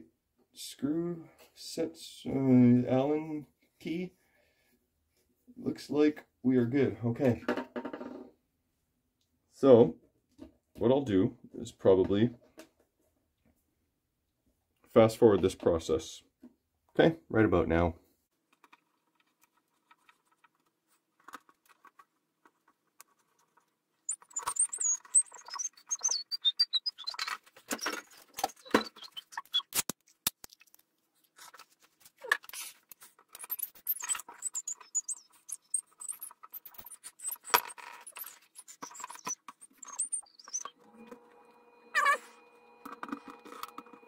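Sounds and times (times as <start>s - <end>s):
high wavering squeaks: 24.0s - 29.8s, 32.2s - 44.0s
screws and screwdriver clicking: 32.3s - 40.7s.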